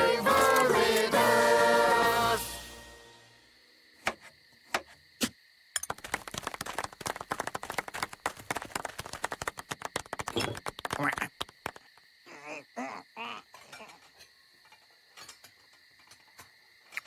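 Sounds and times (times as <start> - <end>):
sharp clicks and taps: 5.8 - 12.0.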